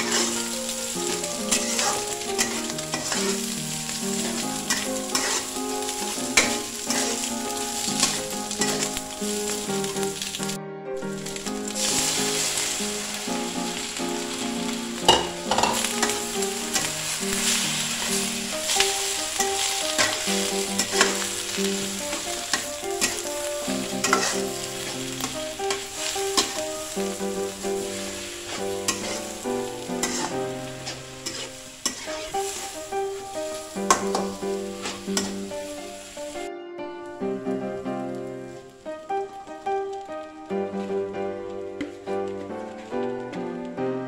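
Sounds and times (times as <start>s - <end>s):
spatula scraping a pan: 0.0s - 9.1s, 15.1s - 21.4s, 22.0s - 26.7s, 27.7s - 32.8s, 33.9s - 35.5s
food sizzling in a wok: 0.0s - 36.5s, 37.1s - 43.6s
soft background music: 0.0s - 44.0s.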